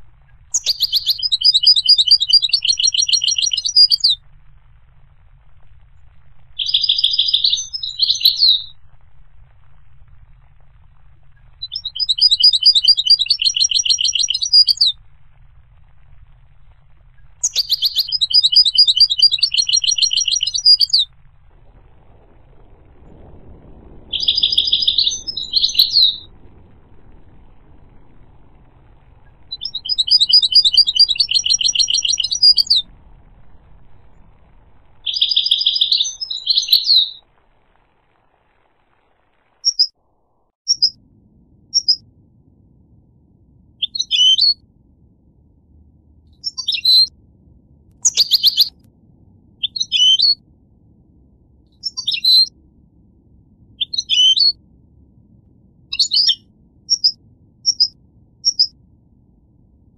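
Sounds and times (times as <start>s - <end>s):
goldfinch twittering song: 0.5s - 4.2s, 6.6s - 8.8s, 11.6s - 14.9s, 17.4s - 21.1s, 24.1s - 26.3s, 29.5s - 32.8s, 35.0s - 37.2s, 39.6s - 39.9s, 40.7s - 41.0s, 41.8s - 42.0s, 43.8s - 44.6s, 46.4s - 47.1s, 48.0s - 48.7s, 49.6s - 50.4s, 51.8s - 52.5s, 53.8s - 54.6s, 55.9s - 58.7s
short high bird chirps: 0.5s - 4.2s, 6.6s - 8.8s, 11.6s - 14.9s, 17.4s - 21.1s, 24.1s - 26.3s, 29.5s - 32.8s, 35.0s - 37.2s, 39.6s - 39.9s, 40.7s - 41.0s, 41.8s - 42.0s, 43.8s - 44.6s, 46.4s - 47.1s, 48.0s - 48.7s, 49.6s - 50.4s, 51.8s - 52.5s, 53.8s - 54.6s, 55.9s - 58.7s.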